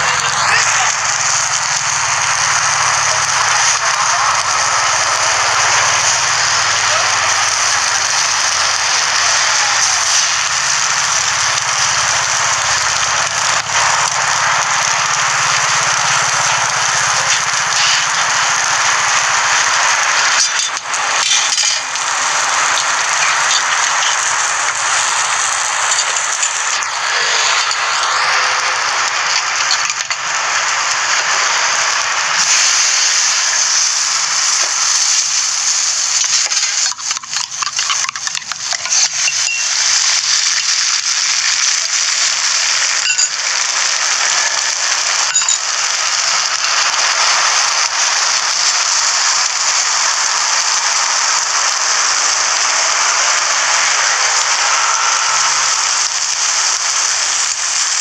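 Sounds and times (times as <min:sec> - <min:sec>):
food sizzling on a griddle: 0:00.0 - 0:58.0
sharp clicks: 0:36.1 - 0:49.6.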